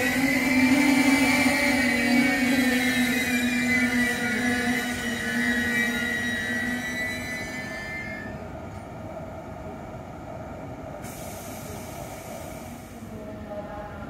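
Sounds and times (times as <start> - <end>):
train brakes squealing: 0.0 - 8.4
standing train hum: 0.0 - 14.0.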